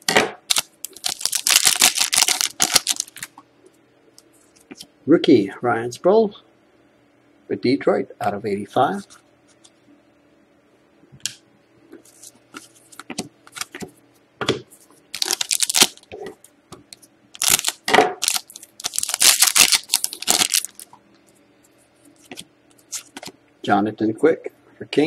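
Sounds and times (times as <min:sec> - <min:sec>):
foil wrapper crinkling and tearing: 0:00.5 - 0:03.3, 0:15.1 - 0:16.1, 0:17.4 - 0:20.9, 0:22.2 - 0:23.3
cards being handled: 0:12.0 - 0:14.0, 0:22.0 - 0:23.3.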